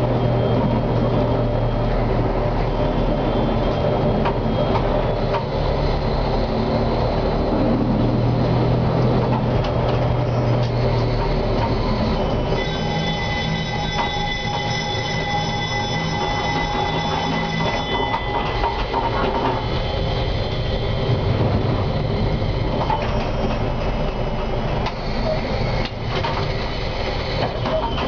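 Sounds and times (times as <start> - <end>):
steady high whine: 0.0 - 28.0
tram motor hum: 0.0 - 28.0.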